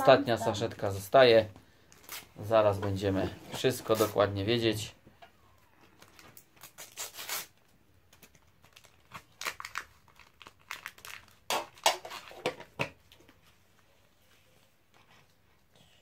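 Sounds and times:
wrapper tearing and crinkling: 0:06.0 - 0:12.6.

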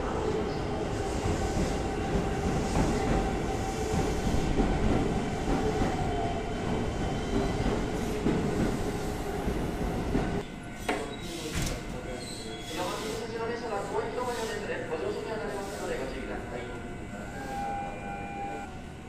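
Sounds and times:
train wheels rumbling on rail: 0:00.0 - 0:11.9.

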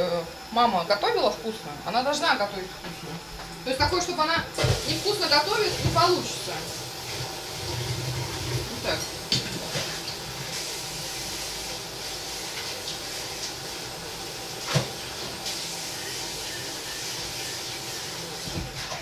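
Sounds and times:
food sizzling in a frying pan: 0:00.0 - 0:19.0.

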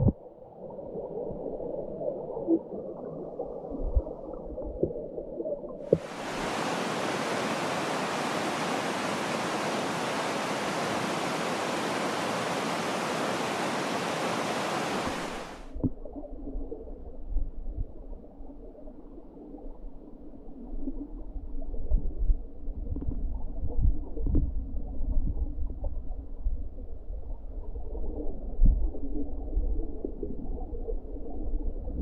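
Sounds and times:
muffled underwater stream: 0:00.0 - 0:32.0
stream rushing: 0:05.9 - 0:15.7.

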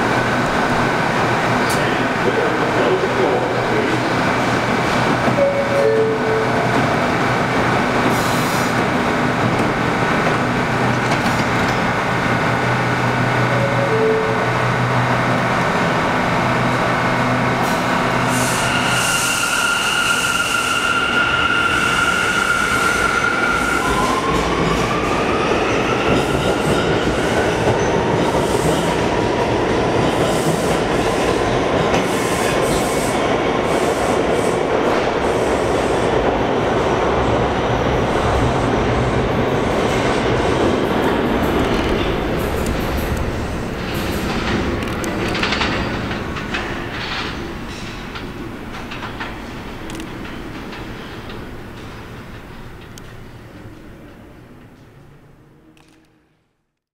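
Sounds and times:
wheel and rail noise: 0:38.1 - 0:55.1.

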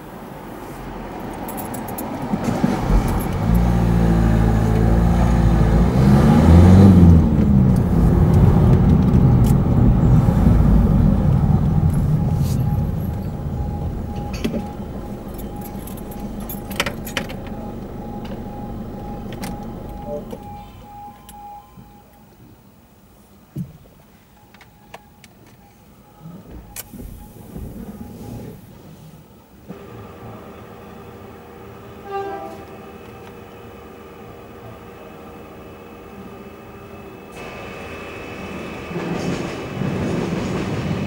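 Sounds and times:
vehicle engine passing: 0:00.6 - 0:21.0
level crossing alarm pulses: 0:02.8 - 0:22.3, 0:24.4 - 0:28.4.

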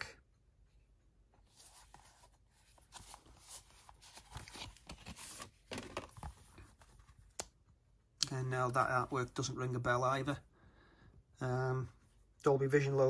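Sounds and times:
plastic case rustling: 0:01.6 - 0:07.1.

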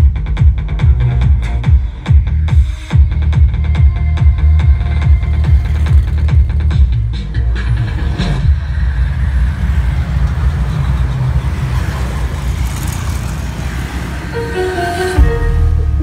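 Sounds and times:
deep bass music: 0:00.0 - 0:11.2, 0:14.4 - 0:16.0
motorbikes passing: 0:04.3 - 0:16.0.

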